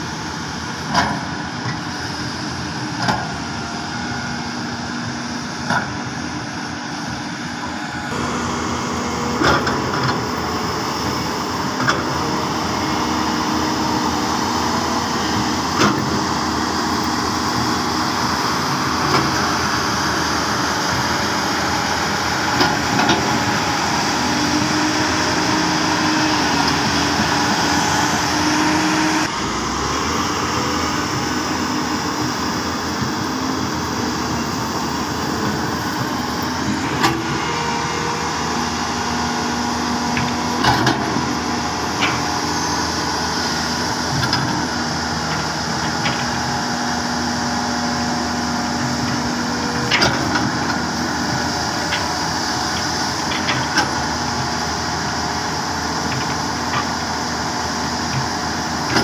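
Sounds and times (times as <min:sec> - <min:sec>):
excavator diesel engine running: 0:00.0 - 0:59.0
hydraulic whine: 0:00.0 - 0:59.0.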